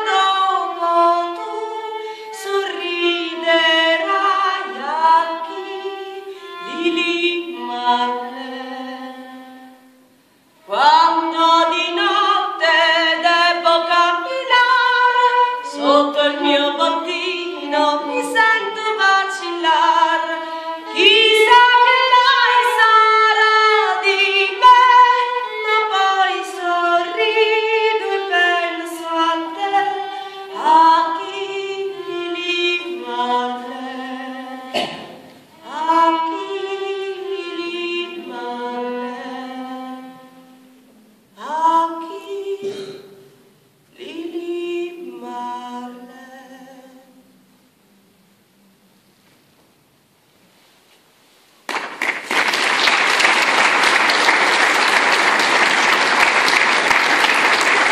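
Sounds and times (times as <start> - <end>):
woman singing: 0.0 - 9.9, 10.6 - 35.0, 35.6 - 40.8, 41.4 - 43.3, 43.9 - 47.4
violin: 0.0 - 42.6.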